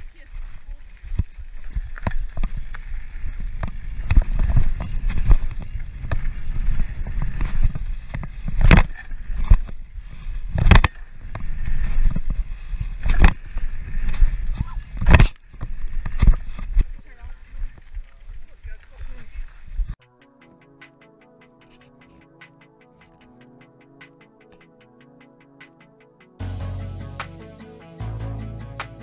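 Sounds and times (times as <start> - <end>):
wind on microphone: 0.0 - 18.0
bike tyres rumbling on dirt: 0.0 - 20.0.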